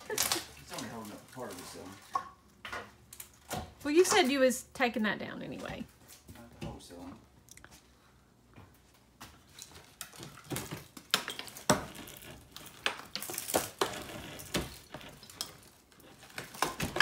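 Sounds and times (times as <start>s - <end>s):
wood scraping: 10.7s - 17.0s.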